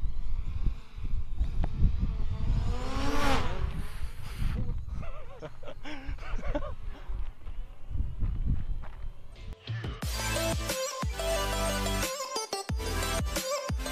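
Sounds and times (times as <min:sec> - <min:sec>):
drone propeller whine: 0:00.0 - 0:04.9
steady low rumble: 0:00.0 - 0:09.6
man laughing: 0:04.9 - 0:07.1.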